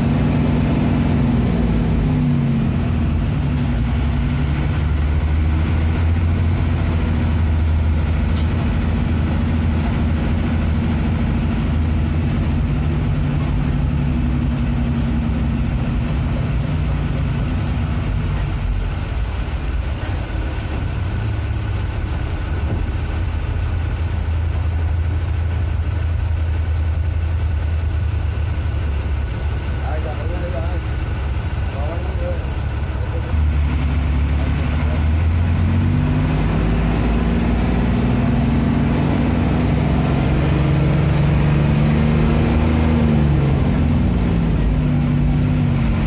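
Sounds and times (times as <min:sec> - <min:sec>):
bus engine drone: 0:00.0 - 0:46.0
road noise: 0:00.0 - 0:46.0.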